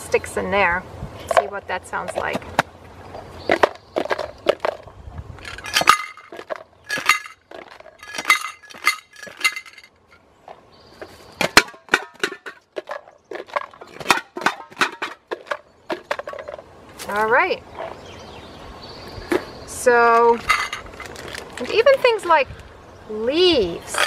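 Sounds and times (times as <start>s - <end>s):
handling noise: 1.3s - 18.0s, 19.2s - 22.2s
homemade shakers rattling: 5.4s - 9.9s.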